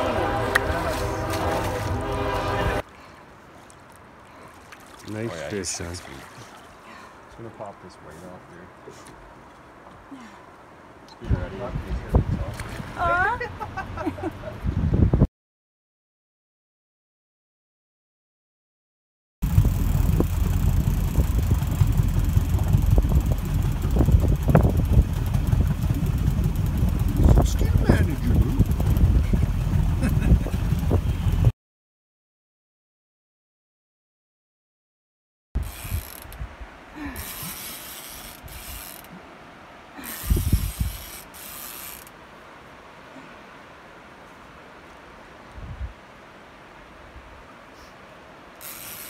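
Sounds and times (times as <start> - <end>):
boat engine rumbling: 0.0 - 9.4, 11.3 - 14.6, 19.4 - 31.5, 35.6 - 42.2
wind buffeting microphone: 11.2 - 15.3, 19.4 - 31.5, 40.2 - 41.1, 45.6 - 46.0
fishing reel ratcheting: 19.5 - 29.0, 35.6 - 36.3, 37.2 - 39.1, 40.0 - 42.1, 48.6 - 49.0.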